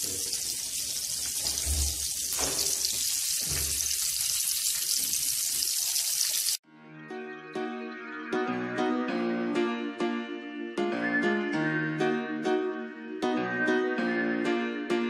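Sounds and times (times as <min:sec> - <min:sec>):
fish frying in hot oil: 0:00.0 - 0:06.6.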